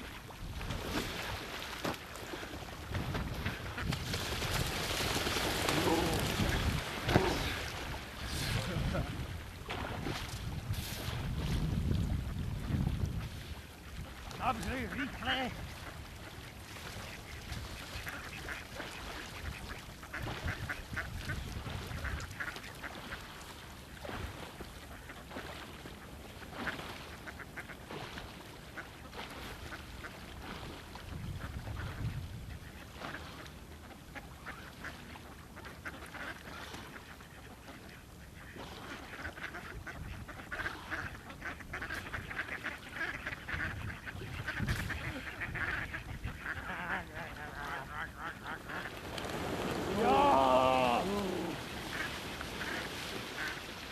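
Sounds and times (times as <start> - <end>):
ducks quacking: 3.3 - 4.1, 4.9 - 9.2, 14.4 - 23.2, 31.4 - 53.8.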